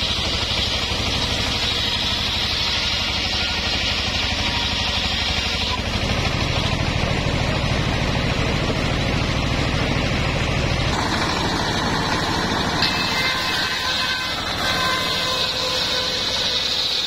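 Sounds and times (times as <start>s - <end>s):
saw blade spinning freely: 0.0s - 7.1s, 10.9s - 17.0s
saw blade cutting log: 0.0s - 7.3s, 10.9s - 17.0s
diesel engine running: 0.0s - 17.0s.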